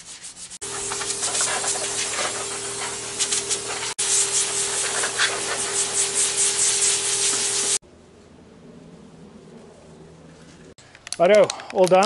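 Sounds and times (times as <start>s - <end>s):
power sander on metal panel: 0.6s - 7.8s.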